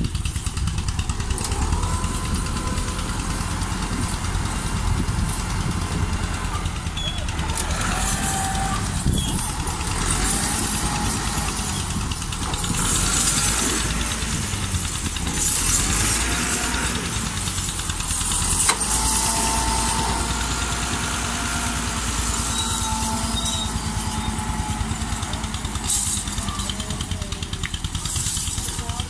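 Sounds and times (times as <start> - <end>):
tractor diesel engines under load: 0.0 - 29.0.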